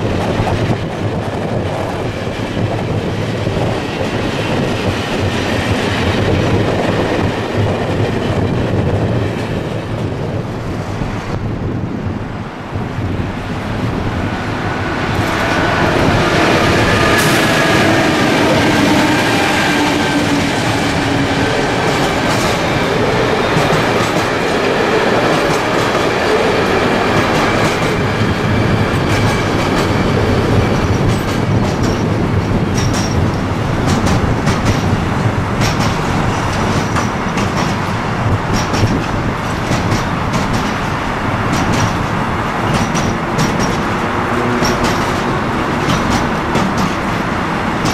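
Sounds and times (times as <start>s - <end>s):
diesel locomotive engines droning: 0.0s - 47.9s
train wheels clacking over rail joints: 15.0s - 47.9s.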